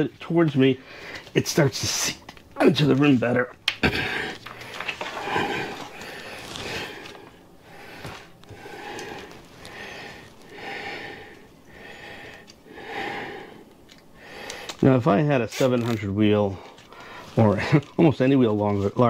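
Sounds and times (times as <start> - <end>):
man breathing heavily: 0.8 - 1.4, 3.8 - 14.8, 16.6 - 17.4.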